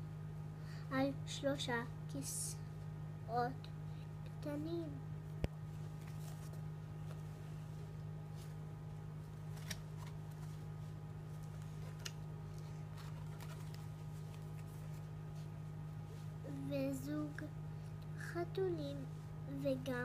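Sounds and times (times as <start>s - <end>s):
steady low hum: 0.0s - 20.0s
book pages turning: 5.7s - 7.7s, 9.2s - 15.6s.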